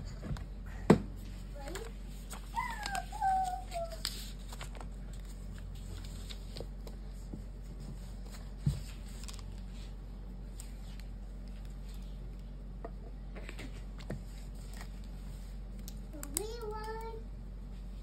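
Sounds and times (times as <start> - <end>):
paper rustling: 1.6 - 12.2.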